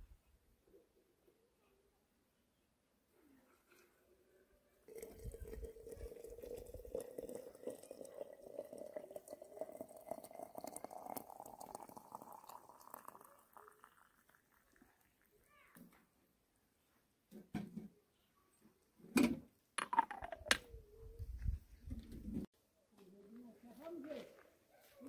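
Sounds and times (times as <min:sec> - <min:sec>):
water pouring into a teapot: 0:04.9 - 0:15.4.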